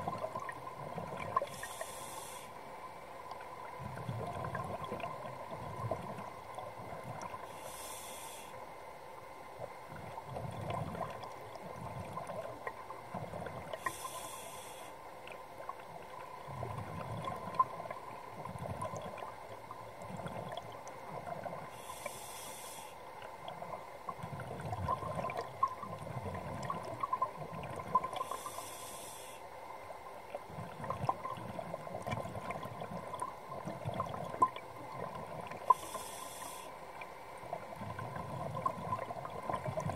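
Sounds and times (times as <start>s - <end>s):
faint steady whine: 0.0s - 39.9s
regulator hissing inhale: 1.4s - 2.6s, 7.4s - 8.6s, 13.8s - 15.0s, 21.7s - 23.1s, 28.2s - 29.5s, 35.7s - 36.8s.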